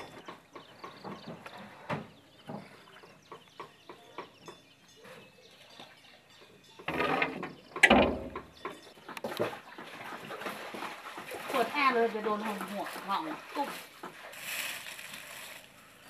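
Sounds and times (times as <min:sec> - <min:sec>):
boat knocking against wood: 0:00.0 - 0:04.7, 0:06.8 - 0:09.9
heavy hollow knock: 0:07.8 - 0:08.7.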